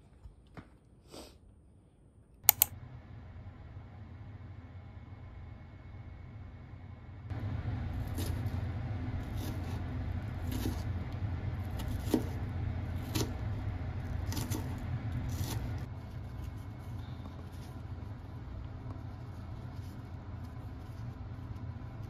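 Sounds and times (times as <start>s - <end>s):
low rumble: 2.7s - 22.0s
knife chopping on plastic board: 11.7s - 12.4s, 14.3s - 14.7s.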